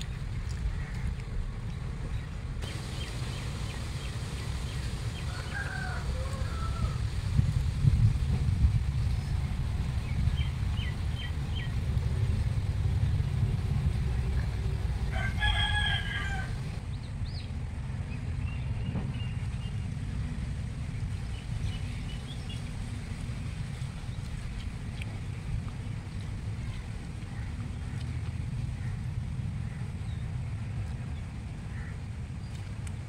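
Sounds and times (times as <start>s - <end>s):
wind rumble on microphone: 0.0s - 33.0s
rooster crowing: 5.1s - 7.1s, 15.1s - 16.8s.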